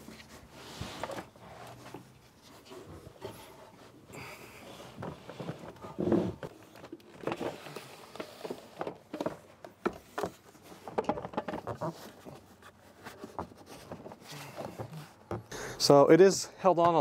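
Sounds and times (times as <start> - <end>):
plastic case knocks and scrapes: 7.2 - 12.4.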